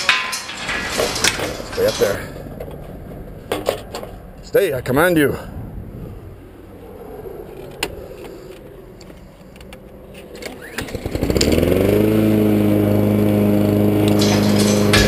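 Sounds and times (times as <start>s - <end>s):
recoil starter cord rattle: 0.0s - 4.4s, 9.5s - 12.2s, 13.9s - 15.0s
lawn mower engine running: 10.3s - 15.0s.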